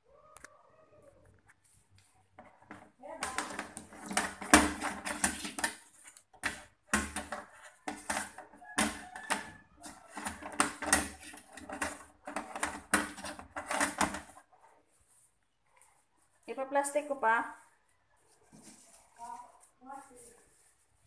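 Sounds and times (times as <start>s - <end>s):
handling clicks knocks and rustles: 2.3s - 14.6s.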